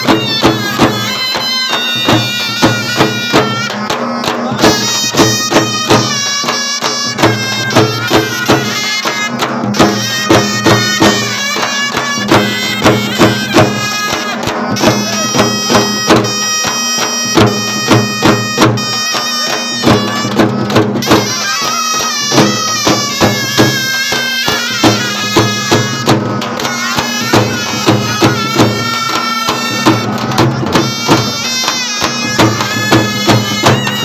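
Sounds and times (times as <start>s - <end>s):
steady drum beat: 0.0s - 34.0s.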